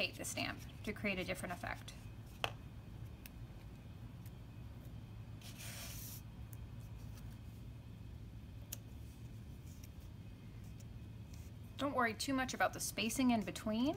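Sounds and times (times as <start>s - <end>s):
low steady hum: 0.0s - 13.9s.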